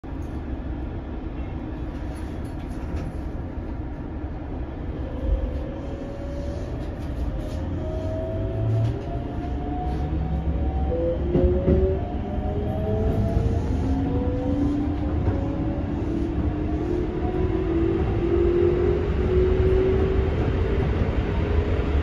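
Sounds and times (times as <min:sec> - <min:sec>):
rumble of wheels on rail: 0:00.0 - 0:22.0
electric train inverter whining: 0:04.7 - 0:22.0.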